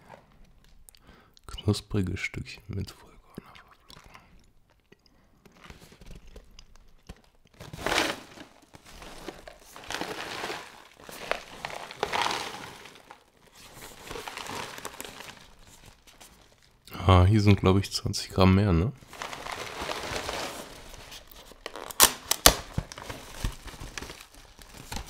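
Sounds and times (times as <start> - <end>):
cereal packaging crinkling: 3.9 - 16.8, 19.0 - 25.0.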